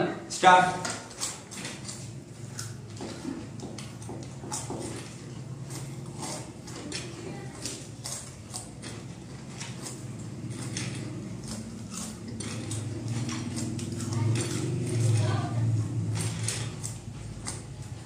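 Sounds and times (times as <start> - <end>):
crunching snacks: 7.5 - 15.2.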